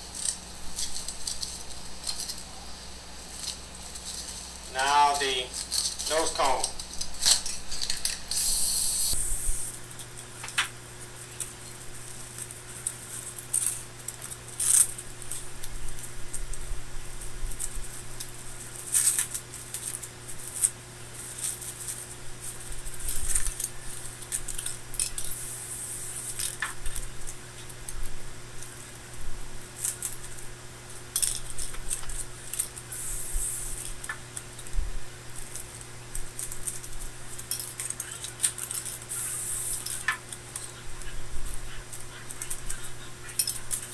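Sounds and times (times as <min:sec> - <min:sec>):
low electrical hum: 0:00.0 - 0:43.9
steady hiss: 0:00.0 - 0:43.9.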